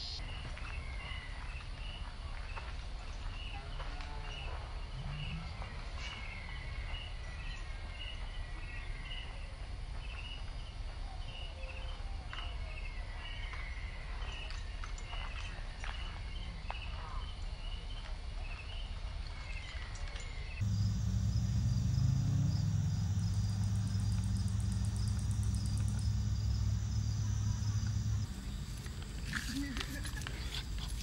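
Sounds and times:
insect chirping: 0.0s - 0.2s, 20.6s - 31.0s.

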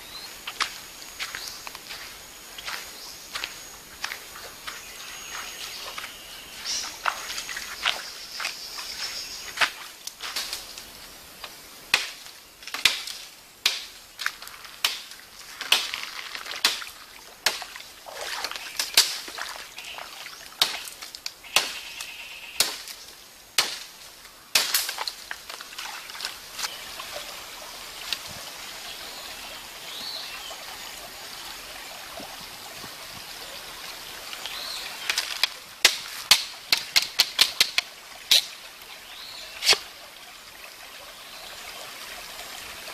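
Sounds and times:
stream hiss: 0.0s - 42.9s
faint bird calls: 21.4s - 22.7s
knife hacking bamboo: 23.6s - 23.9s, 39.6s - 39.8s.

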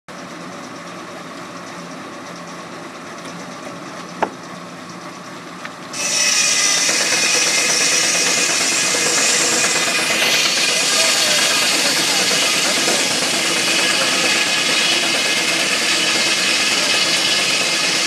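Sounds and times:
sawmill saw humming: 0.1s - 18.0s
saw blade cutting log: 5.9s - 18.0s.

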